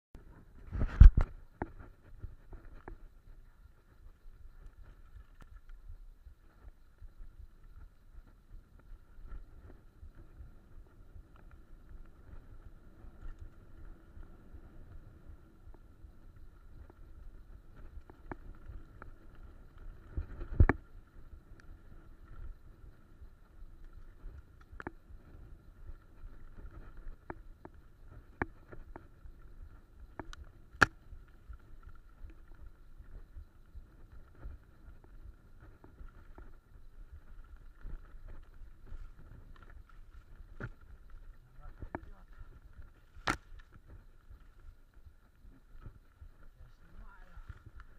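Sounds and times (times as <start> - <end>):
bike tyres rumbling on dirt: 0.2 - 47.9
wind on microphone: 0.2 - 47.9.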